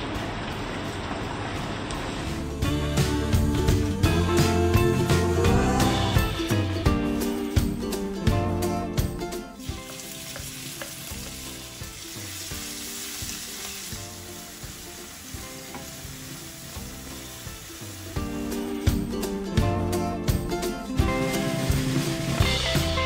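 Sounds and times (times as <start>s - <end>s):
background music: 0.1s - 23.0s
vegetables sizzling in hot oil: 9.6s - 19.2s, 21.0s - 23.0s.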